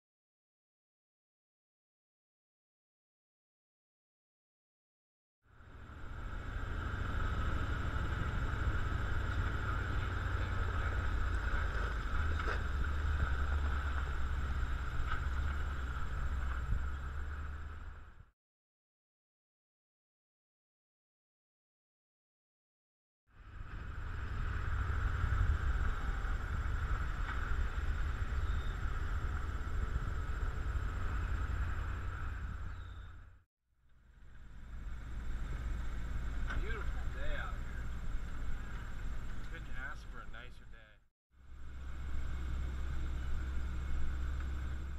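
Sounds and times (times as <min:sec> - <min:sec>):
high whine: 0:05.5 - 0:18.2, 0:23.4 - 0:33.3, 0:34.1 - 0:40.8
truck engine rumble: 0:05.5 - 0:18.3, 0:23.4 - 0:44.9.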